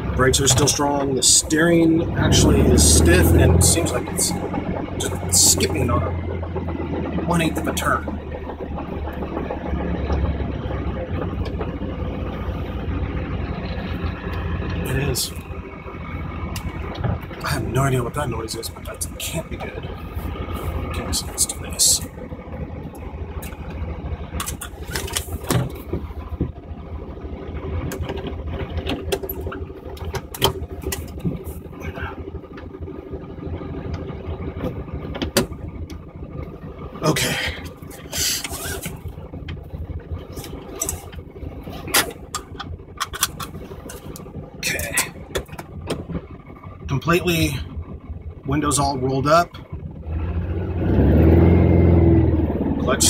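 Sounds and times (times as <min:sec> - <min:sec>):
car engine running: 0:00.0 - 0:53.0.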